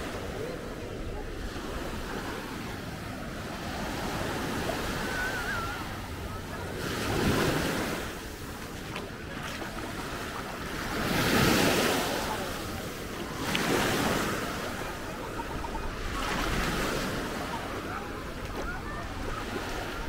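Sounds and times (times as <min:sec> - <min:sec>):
sea waves washing onto shore: 0:00.0 - 0:20.0.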